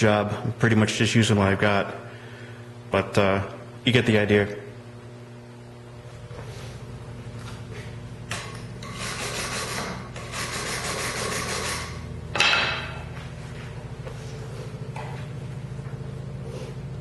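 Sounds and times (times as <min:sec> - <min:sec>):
steady low hum: 0:00.0 - 0:17.0
wire brush scrubbing metal: 0:08.8 - 0:12.0.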